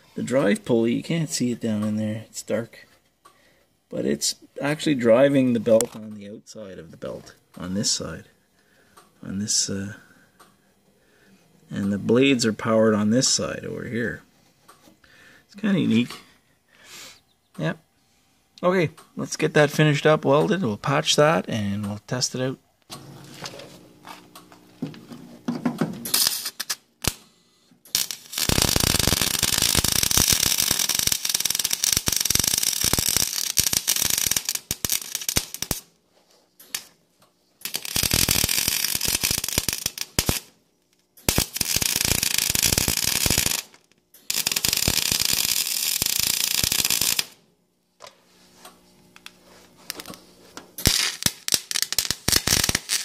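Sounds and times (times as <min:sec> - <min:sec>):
welder crackling sizzle: 0:26.0 - 0:27.2, 0:27.9 - 0:36.0, 0:36.6 - 0:37.0, 0:37.6 - 0:40.6, 0:41.2 - 0:47.4, 0:49.2 - 0:50.2, 0:50.8 - 0:53.0.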